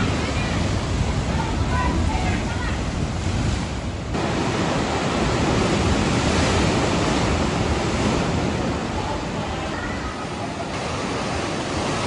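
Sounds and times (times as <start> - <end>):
surf crashing through rock gully: 0.0 - 12.0.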